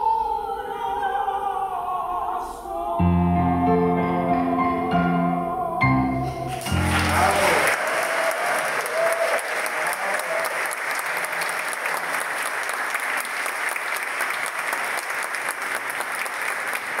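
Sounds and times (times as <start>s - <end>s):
large audience applauding: 6.5s - 17.0s.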